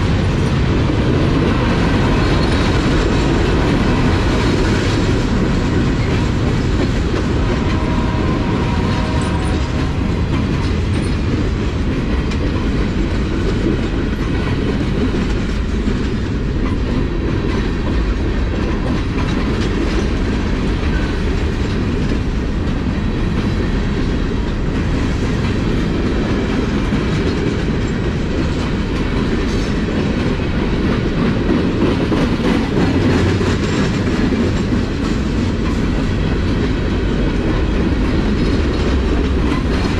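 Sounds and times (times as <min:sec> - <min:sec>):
freight train rolling past: 0:00.0 - 0:39.9
wheels clacking over rail joints: 0:00.0 - 0:39.9.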